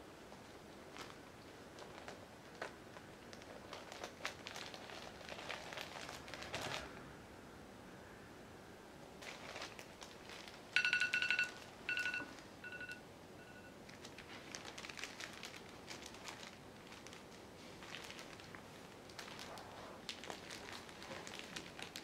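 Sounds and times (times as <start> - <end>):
plastic bag crinkling: 0.3 - 7.0, 9.2 - 12.9, 13.8 - 22.0
phone timer alarm beeping: 10.8 - 13.8.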